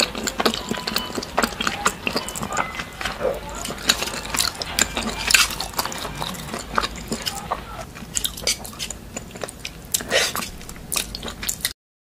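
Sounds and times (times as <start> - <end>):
lip smacks: 0.0 - 11.7
people chewing food: 0.0 - 11.8.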